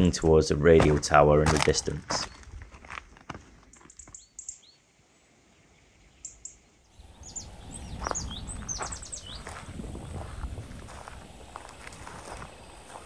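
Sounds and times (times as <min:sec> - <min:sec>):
small birds chirping: 0:01.7 - 0:02.6, 0:03.6 - 0:13.0.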